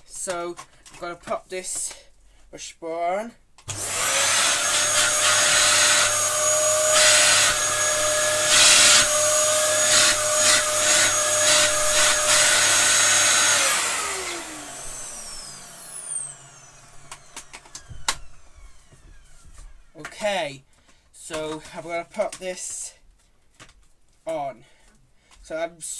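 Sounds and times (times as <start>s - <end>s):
vacuum cleaner running: 3.7s - 20.2s.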